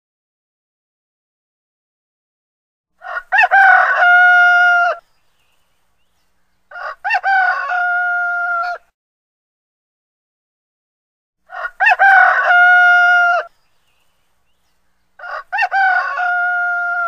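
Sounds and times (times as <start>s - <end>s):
rooster crowing: 3.0s - 5.0s, 6.7s - 8.9s, 11.4s - 13.5s, 15.2s - 17.0s.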